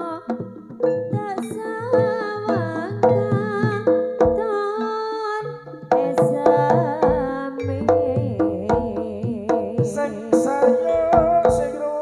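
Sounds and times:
hand drum strokes: 0.0 - 4.7, 5.6 - 12.0
wavering melodic line: 7.6 - 8.4.

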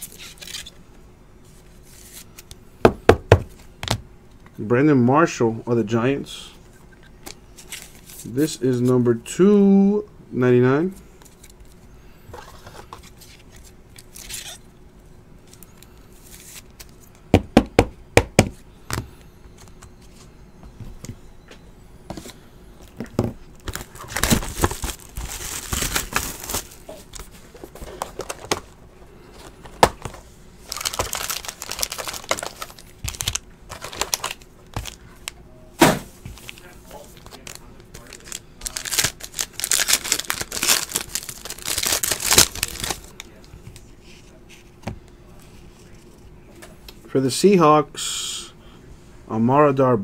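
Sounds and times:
crinkling and rustling: 22.9 - 35.4, 36.2 - 44.8.

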